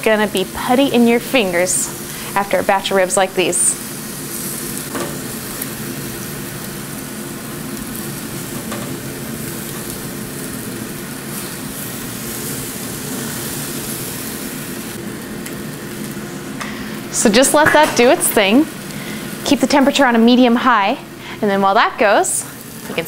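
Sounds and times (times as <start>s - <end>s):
ribs sizzling on grill: 0.0s - 23.0s.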